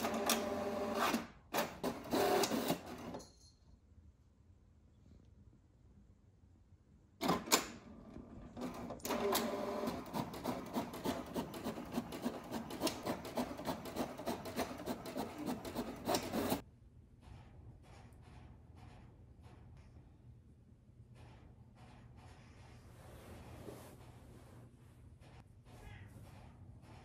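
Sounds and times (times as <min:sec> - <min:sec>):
print carriage whirring and clicking: 0:00.0 - 0:03.1, 0:07.2 - 0:16.6.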